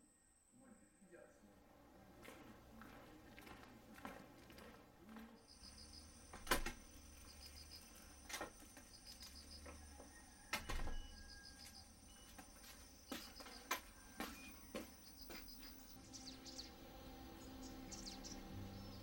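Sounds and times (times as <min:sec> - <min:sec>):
insect chirping trill: 0:05.5 - 0:19.0.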